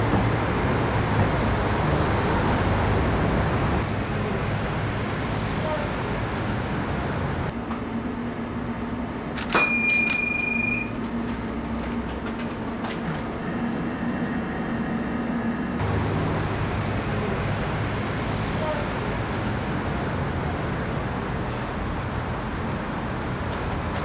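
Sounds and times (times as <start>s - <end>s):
street traffic: 0.0s - 24.0s
steady high beep: 9.6s - 10.9s.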